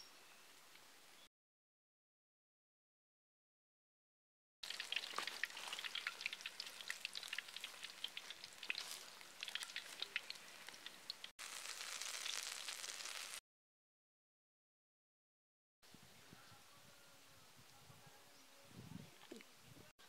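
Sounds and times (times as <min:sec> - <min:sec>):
batter deep-frying in oil: 0:04.6 - 0:13.4.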